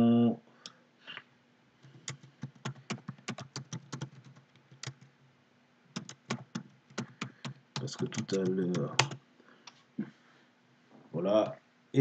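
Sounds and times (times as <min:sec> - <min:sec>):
typing on a computer keyboard: 0:01.8 - 0:05.1, 0:05.9 - 0:09.2.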